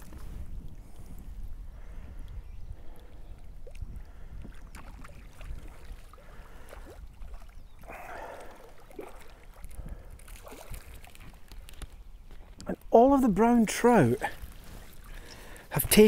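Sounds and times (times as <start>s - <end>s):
wind rumbling on microphone: 0.0s - 12.9s
water splashing at shore: 4.5s - 12.4s
fish splashing in net: 8.8s - 11.7s.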